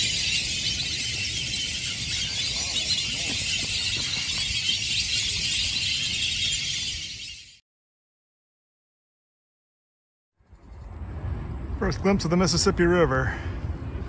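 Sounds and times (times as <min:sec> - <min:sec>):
ducks squealing whistles: 0:00.0 - 0:07.6.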